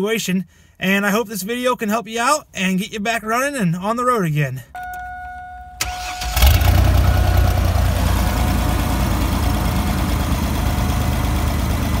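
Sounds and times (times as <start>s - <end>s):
warning chime tone: 4.7s - 5.9s
van engine cranking and idling: 4.8s - 12.0s.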